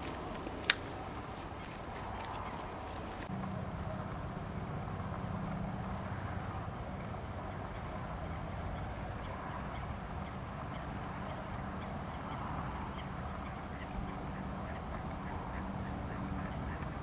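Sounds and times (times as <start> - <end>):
ducks quacking: 9.2 - 17.0.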